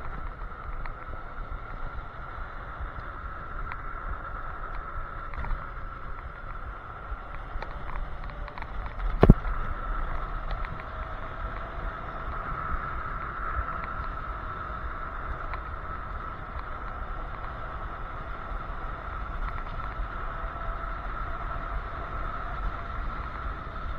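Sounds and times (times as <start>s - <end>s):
electric scooter whine: 0.0s - 23.9s
wind rushing over microphone: 0.0s - 23.9s.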